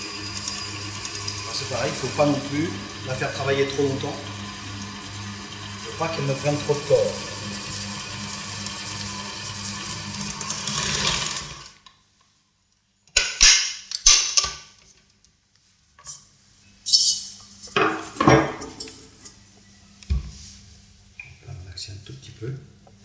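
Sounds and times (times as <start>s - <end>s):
electric mixer humming: 0.0s - 11.8s
metal bowl and utensils clanking: 17.7s - 19.4s.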